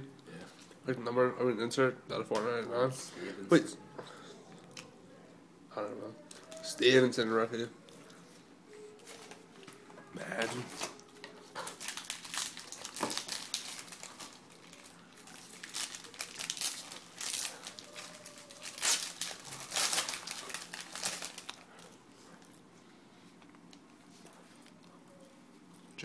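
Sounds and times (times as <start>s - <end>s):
plastic wrapper crinkling and tearing: 9.0s - 22.6s.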